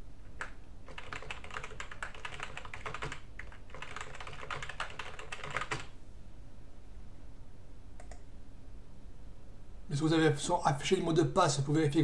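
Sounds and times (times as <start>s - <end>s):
keyboard typing: 0.4s - 5.9s, 8.0s - 8.2s.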